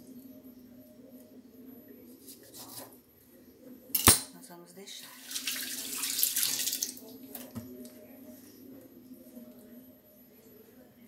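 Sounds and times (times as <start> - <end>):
kitchen tap running water: 5.0 - 7.0.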